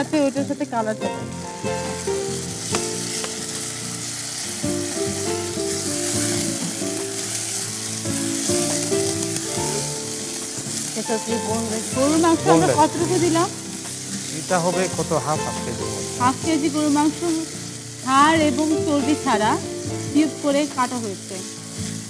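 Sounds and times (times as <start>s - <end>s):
background music: 0.0s - 22.0s
beef sizzling in hot oil: 0.0s - 22.0s.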